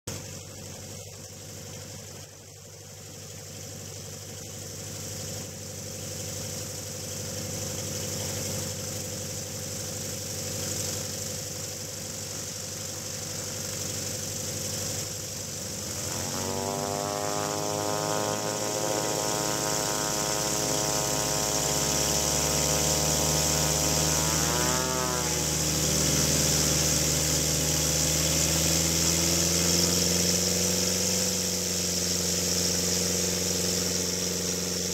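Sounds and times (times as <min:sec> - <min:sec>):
aircraft piston engine idling: 0:00.1 - 0:34.9
constant hiss: 0:00.1 - 0:34.9
second pitched engine note: 0:15.6 - 0:34.9.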